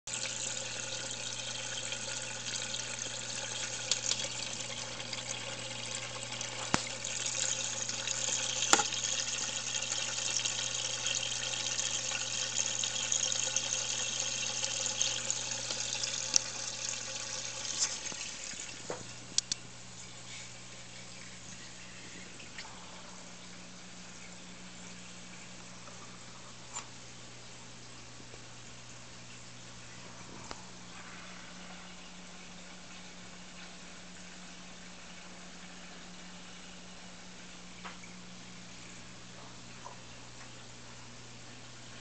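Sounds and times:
water trickling and splashing: 0.1 - 26.4
low pump hum: 0.1 - 42.0
sharp light clicks: 19.4 - 19.6.

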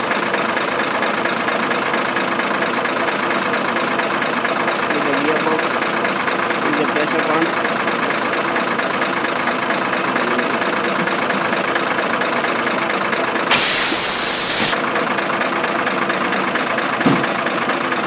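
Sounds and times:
engine idling: 0.0 - 18.0
loud hiss: 13.5 - 14.8.

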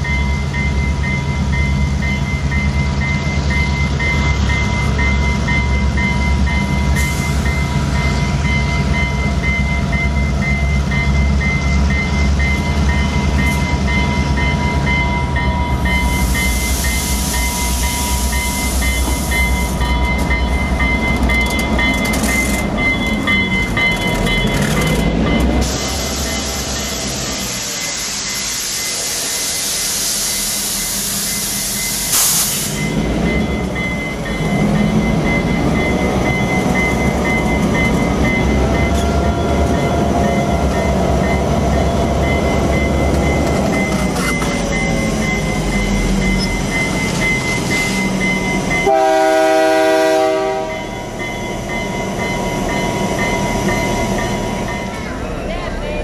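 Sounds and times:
diesel locomotive engine running: 0.0 - 56.0
loud hiss of air: 16.1 - 17.6, 25.6 - 32.9
train horn chord: 48.8 - 50.8.

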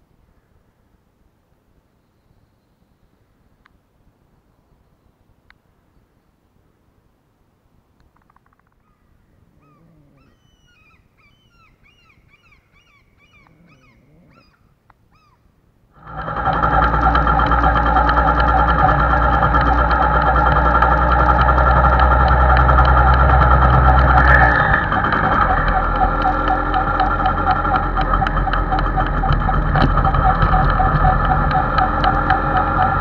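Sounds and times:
faint birds chirping: 1.8 - 6.7, 8.0 - 15.6
motorcycle engine riding: 16.0 - 33.0.

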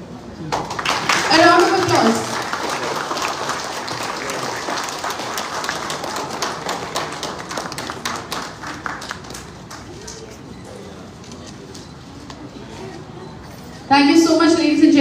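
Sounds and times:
crowd applauding: 0.4 - 10.5.

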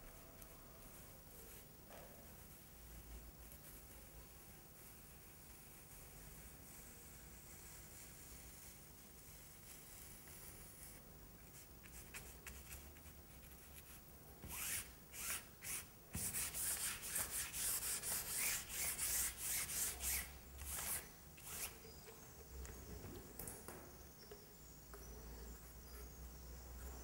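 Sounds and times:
pad scratching on canvas: 11.8 - 21.8.

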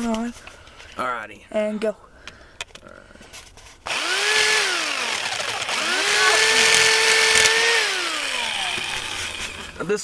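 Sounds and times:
jigsaw cutting plastic pipe: 3.8 - 9.8.

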